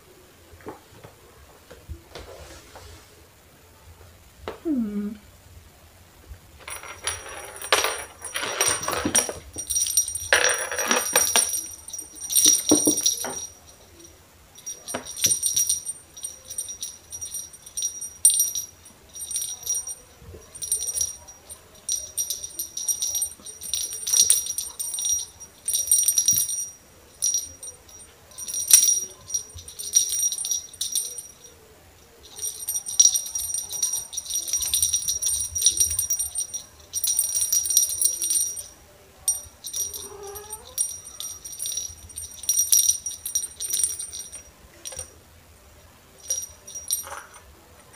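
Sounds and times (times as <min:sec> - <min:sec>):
small bell jingling: 0:06.6 - 0:45.2, 0:46.2 - 0:47.9.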